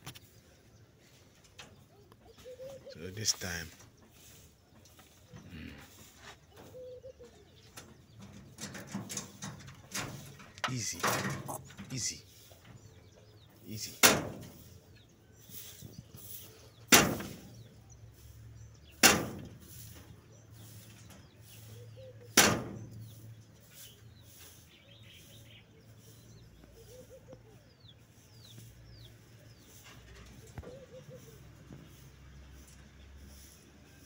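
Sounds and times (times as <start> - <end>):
faint bird chirps: 0.0 - 7.9, 19.6 - 34.0
loud sharp bangs: 13.9 - 14.6, 16.9 - 17.7, 18.9 - 19.9, 22.3 - 23.2.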